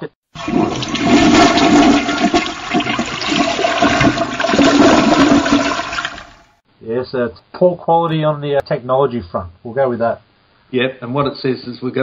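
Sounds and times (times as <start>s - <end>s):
toilet flushing: 0.4s - 6.5s.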